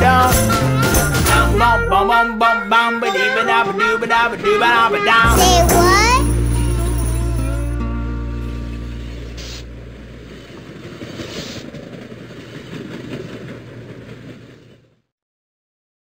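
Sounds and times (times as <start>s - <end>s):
low musical note: 1.6s - 10.4s
train rumbling: 3.3s - 15.0s
short hisses: 9.2s - 9.8s, 11.0s - 11.7s.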